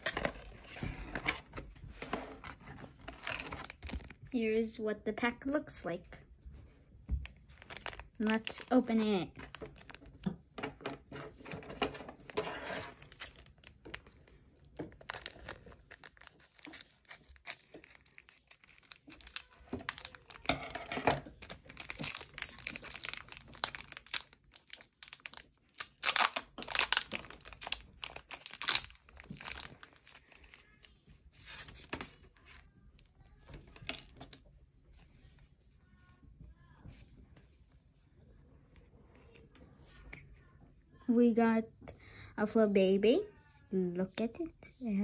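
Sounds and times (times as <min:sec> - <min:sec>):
foil wrapper tearing and crinkling: 0:07.5 - 0:10.1, 0:12.2 - 0:14.2, 0:14.8 - 0:20.7, 0:21.3 - 0:32.5.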